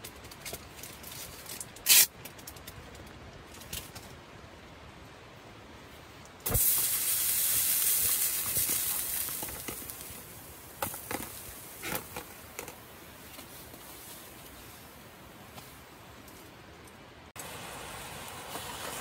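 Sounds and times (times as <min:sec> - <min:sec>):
loud hiss of steam: 0:01.9 - 0:02.1, 0:06.4 - 0:12.0, 0:17.4 - 0:19.0.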